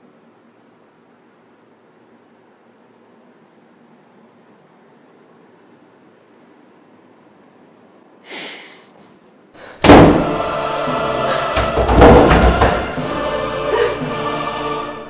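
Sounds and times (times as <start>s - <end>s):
fist banging on wooden door: 9.8s - 10.4s, 11.6s - 13.0s
loud dramatic music: 9.8s - 15.0s.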